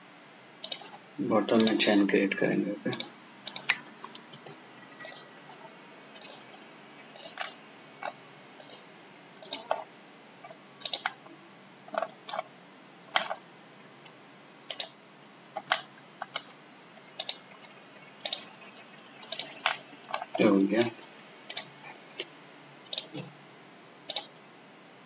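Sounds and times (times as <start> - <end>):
faint background hiss: 0.0 - 25.0
mouse and keyboard clicks: 2.9 - 5.3, 9.4 - 9.8, 10.8 - 11.2, 14.7 - 15.0, 18.3 - 18.5, 24.1 - 24.3.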